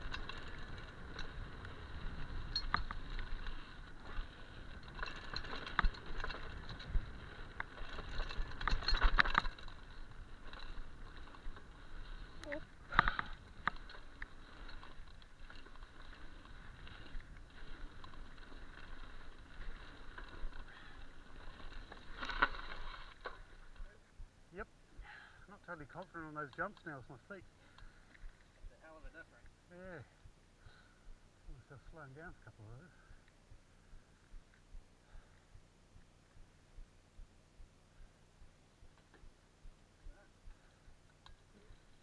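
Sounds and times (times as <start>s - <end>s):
bike rattling over bumps: 0.0s - 24.1s, 38.8s - 42.0s
bike tyres rolling over dirt: 0.0s - 24.2s, 38.6s - 42.0s.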